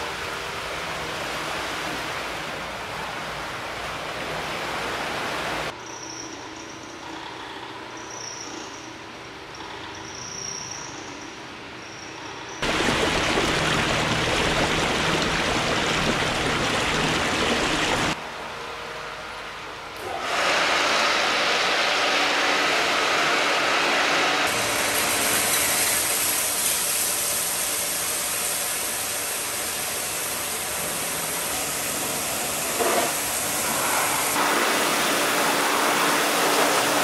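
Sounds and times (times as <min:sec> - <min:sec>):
tyres splashing through water: 0:12.6 - 0:18.2.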